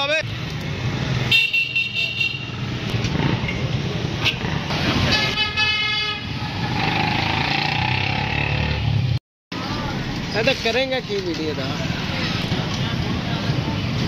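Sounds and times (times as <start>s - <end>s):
street traffic rumble: 0.0s - 14.0s
vehicle horn honking: 5.0s - 6.4s.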